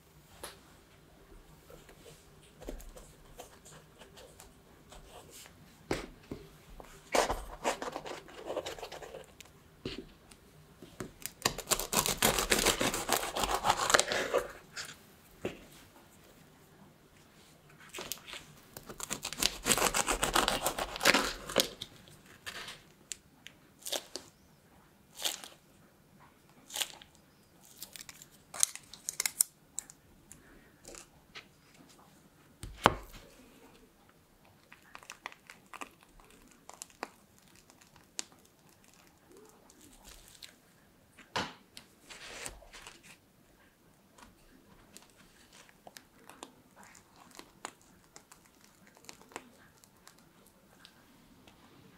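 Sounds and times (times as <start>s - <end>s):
knife crunching through pastry: 7.1s - 9.3s, 11.2s - 15.0s, 17.9s - 22.8s, 23.8s - 24.3s, 25.1s - 25.6s, 26.6s - 29.5s, 34.6s - 40.6s.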